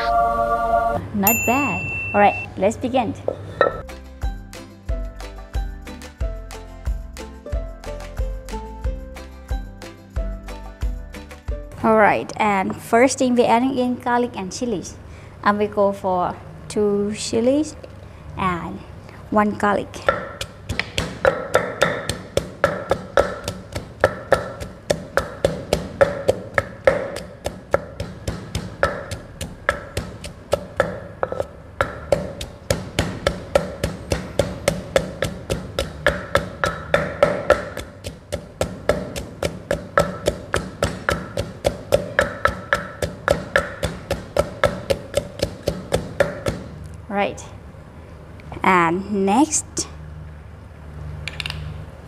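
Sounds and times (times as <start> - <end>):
pestle pounding in a mortar: 20.0 - 46.8.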